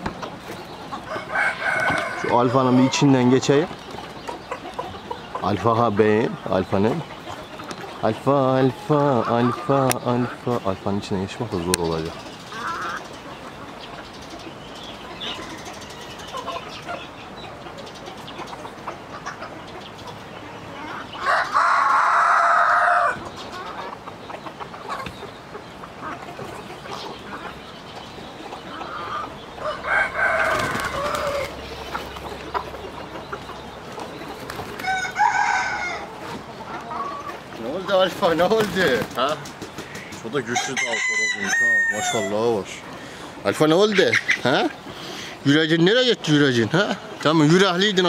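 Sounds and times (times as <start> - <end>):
chickens clucking: 0.0 - 48.0
loud fowl calls: 0.0 - 48.0
rooster crowing: 1.0 - 3.2, 21.2 - 23.2, 29.6 - 31.6, 34.8 - 36.2, 40.5 - 42.4.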